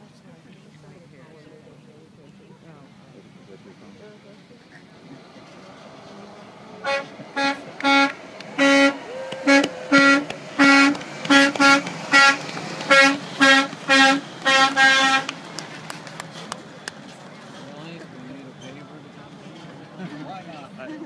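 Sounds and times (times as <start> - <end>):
truck horn short toots: 6.8 - 15.4.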